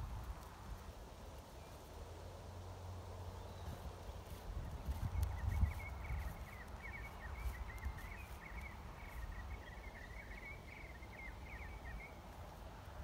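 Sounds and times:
small bird twittering: 0:03.4 - 0:12.2.

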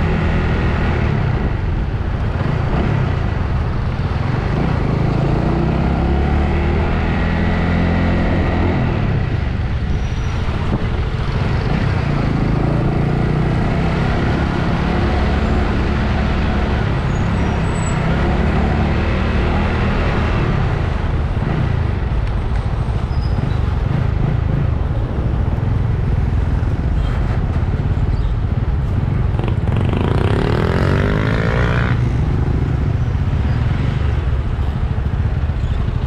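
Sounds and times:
road noise: 0:00.0 - 0:36.0.

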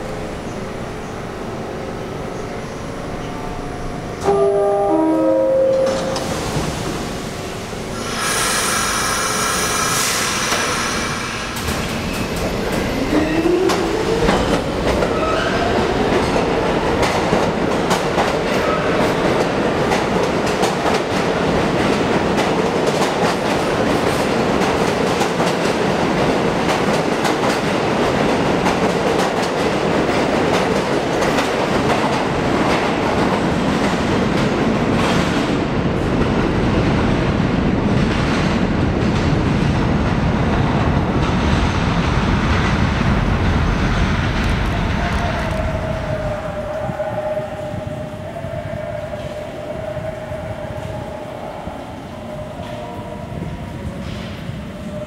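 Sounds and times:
train doors closing: 0:00.0 - 0:37.0, 0:43.9 - 0:55.0
train rumble and wheel clatter: 0:00.0 - 0:55.0
door chime: 0:04.2 - 0:06.3.

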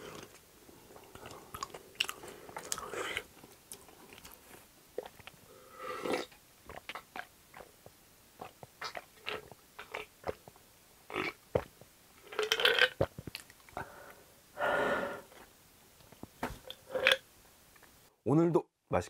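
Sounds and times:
person gulping a drink: 0:05.0 - 0:07.7, 0:08.4 - 0:14.0, 0:16.6 - 0:17.2.

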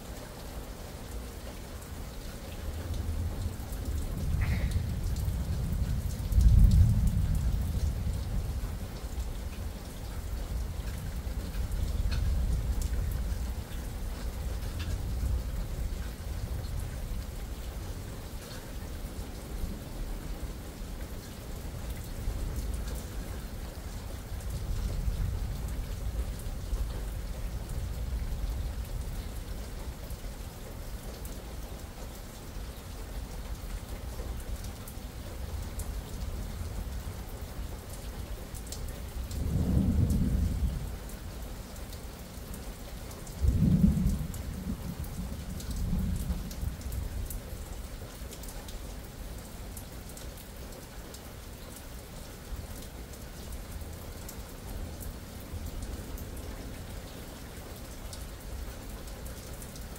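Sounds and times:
rain falling and dripping: 0:00.0 - 0:59.9
thunder rumbling: 0:03.0 - 0:08.7, 0:39.3 - 0:41.0, 0:43.4 - 0:47.2.

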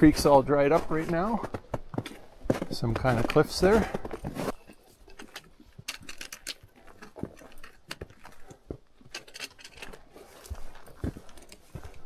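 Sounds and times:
boots stepping on rocks: 0:09.9 - 0:12.0.

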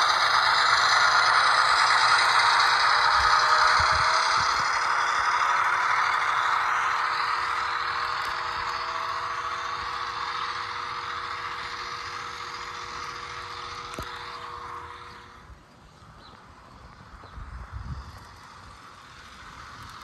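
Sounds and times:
model train motor whirring: 0:00.0 - 0:20.0.

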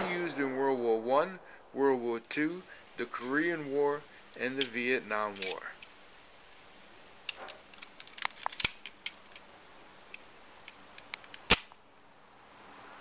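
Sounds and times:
pistol gunshot: 0:00.0 - 0:00.8
pistol metallic clicks: 0:05.4 - 0:06.0, 0:10.1 - 0:11.8.

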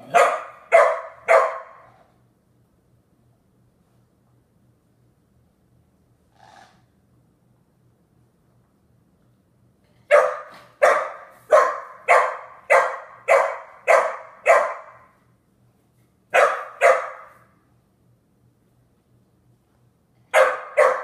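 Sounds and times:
young dog barking: 0:00.0 - 0:02.0, 0:10.1 - 0:15.1, 0:16.3 - 0:17.4, 0:20.3 - 0:21.0.

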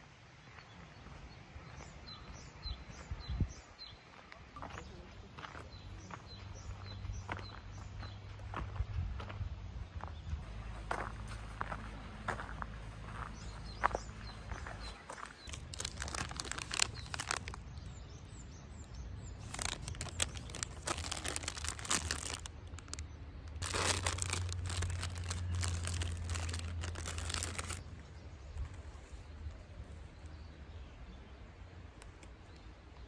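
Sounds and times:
plastic wrapper crinkling: 0:15.5 - 0:17.8, 0:19.4 - 0:27.8.

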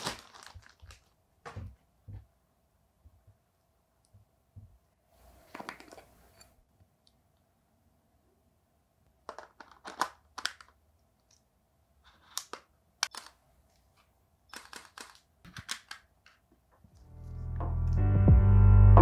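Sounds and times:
background music: 0:17.0 - 0:19.0.

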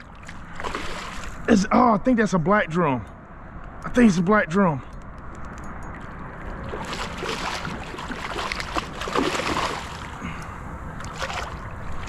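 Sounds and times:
fish thrashing water splashing: 0:00.2 - 0:01.4, 0:06.0 - 0:12.0.

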